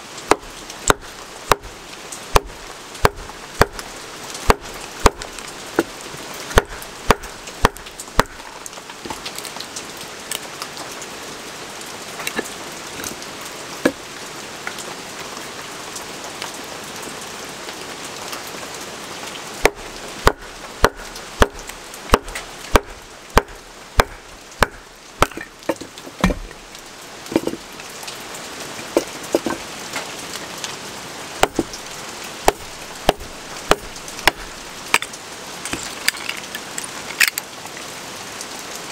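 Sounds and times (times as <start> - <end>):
wooden baton knocking on knife: 29.0 - 29.6.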